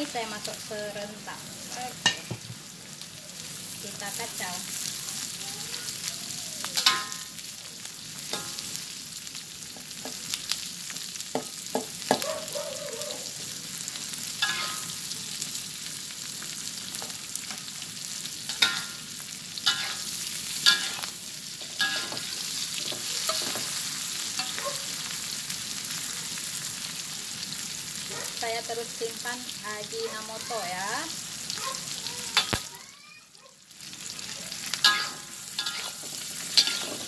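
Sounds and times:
food sizzling in hot oil: 0:00.0 - 0:37.0
metal spatula scraping a pan: 0:14.4 - 0:14.9, 0:19.6 - 0:24.6, 0:34.7 - 0:37.0.

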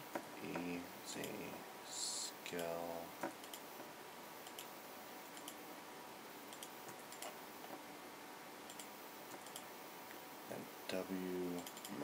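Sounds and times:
background hiss: 0:00.0 - 0:12.0
mouse and keyboard clicks: 0:06.5 - 0:07.4, 0:08.7 - 0:09.7.

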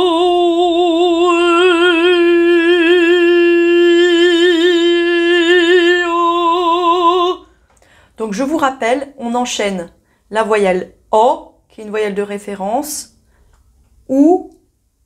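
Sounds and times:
woman singing sustained note: 0:00.0 - 0:07.5.

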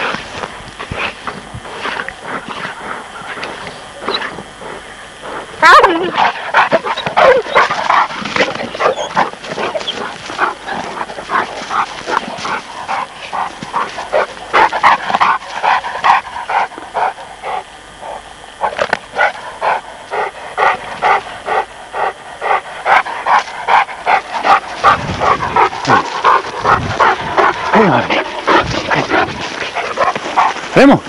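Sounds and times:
puppies yapping barks: 0:06.8 - 0:08.1, 0:08.7 - 0:10.9.

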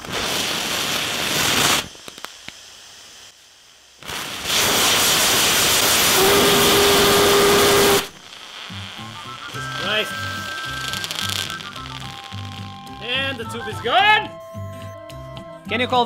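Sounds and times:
rocket engine firing: 0:04.0 - 0:12.5
steady tone: 0:08.7 - 0:14.8.

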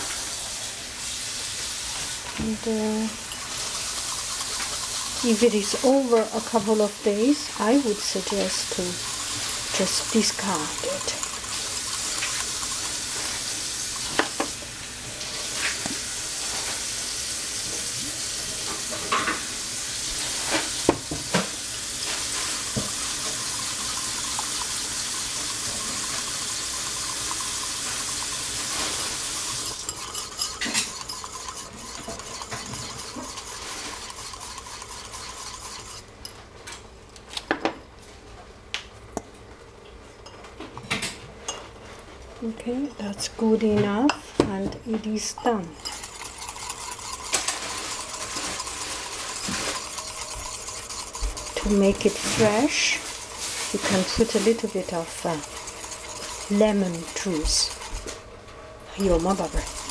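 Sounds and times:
whisking in a bowl: 0:01.4 - 0:36.4, 0:45.1 - 0:59.9
whisk tapping against bowl: 0:02.4 - 0:14.6, 0:22.1 - 0:36.1, 0:45.3 - 0:58.2, 0:59.0 - 0:59.9.

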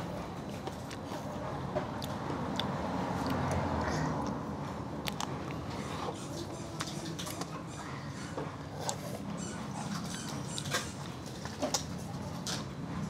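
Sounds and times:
low background hum: 0:00.0 - 0:13.0
wet licking and biting sounds: 0:05.0 - 0:05.6.

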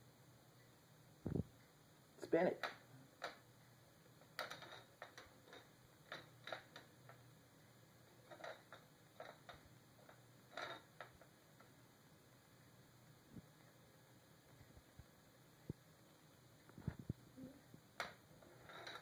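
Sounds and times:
plastic spinner clicking on wooden floor: 0:02.6 - 0:03.5, 0:04.2 - 0:07.2, 0:08.2 - 0:11.7, 0:17.9 - 0:19.0.

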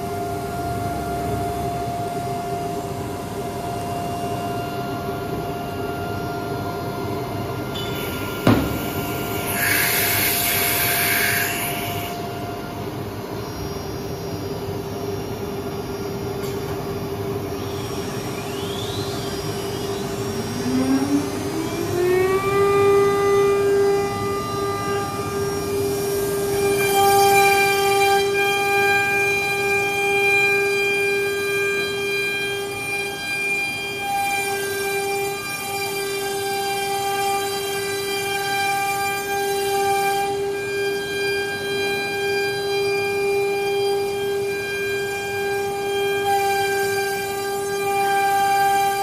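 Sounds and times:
router spindle whining: 0:03.7 - 0:49.0
hiss: 0:09.4 - 0:12.1.

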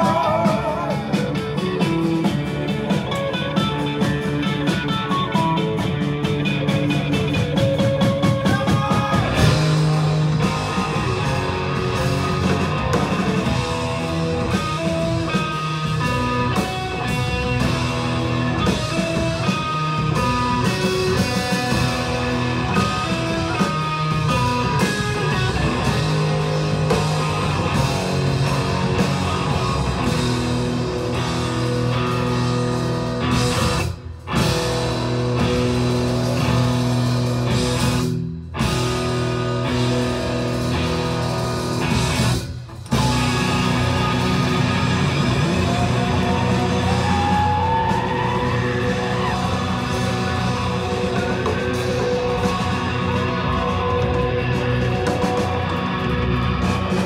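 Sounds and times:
live rock band with guitar: 0:00.0 - 0:57.0.

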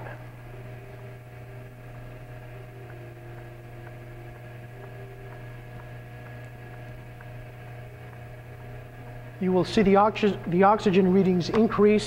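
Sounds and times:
low electrical hum: 0:00.0 - 0:12.0
faint regular ticks: 0:01.9 - 0:09.2.

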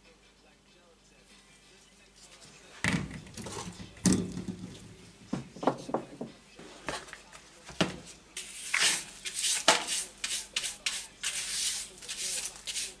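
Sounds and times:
dustpan and brush knocks: 0:06.9 - 0:11.5
hand brush sweeping: 0:08.4 - 0:13.0.

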